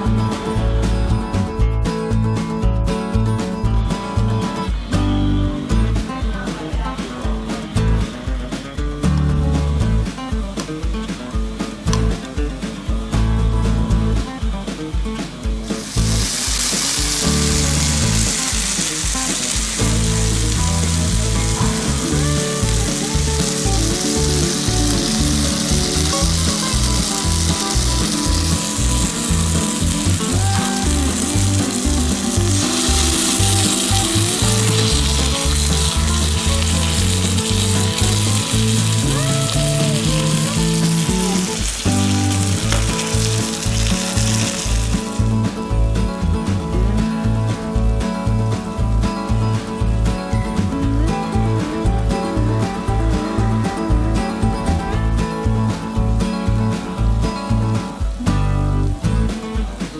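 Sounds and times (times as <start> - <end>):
background music: 0.0 - 59.9
steak sizzling on hot plate: 15.6 - 45.4.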